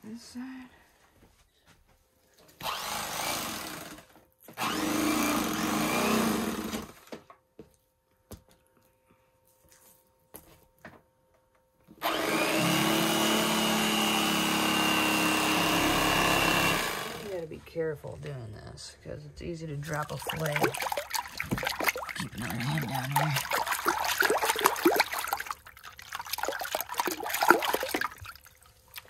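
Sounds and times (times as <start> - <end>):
electric fillet knife running: 2.6 - 4.0, 4.6 - 7.0, 12.0 - 17.3.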